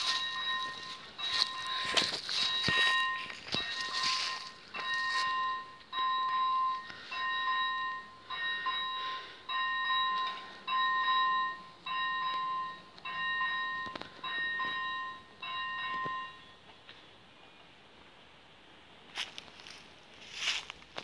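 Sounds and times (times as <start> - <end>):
level crossing warning bell ringing: 0.0 - 16.7.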